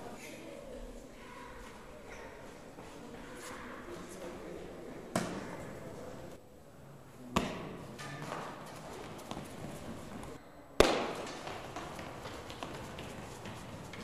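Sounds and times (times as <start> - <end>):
sharp knocks echoing in hall: 7.3 - 14.0.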